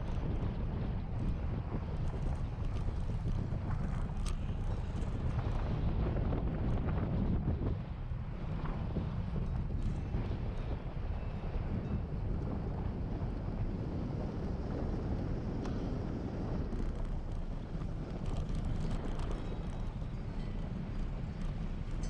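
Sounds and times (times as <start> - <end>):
wind buffeting microphone: 0.0 - 22.0
faint ticks: 2.0 - 5.8, 15.6 - 22.0.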